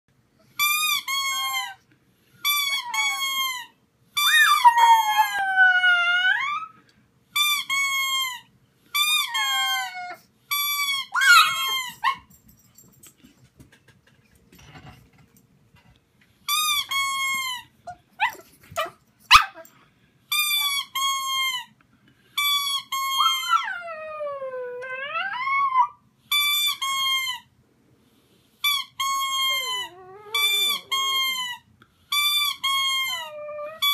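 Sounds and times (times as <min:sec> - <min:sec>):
rubber squeaky toy squeaking: 0:00.6 - 0:01.8, 0:02.4 - 0:05.4, 0:07.4 - 0:12.2, 0:16.5 - 0:19.6, 0:20.3 - 0:21.8, 0:22.4 - 0:23.7, 0:26.3 - 0:27.5, 0:28.6 - 0:33.9
dog howling: 0:04.2 - 0:06.7.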